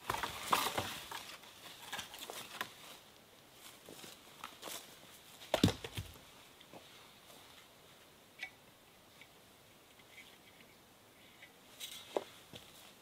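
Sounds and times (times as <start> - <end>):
branch thump: 5.5 - 6.2.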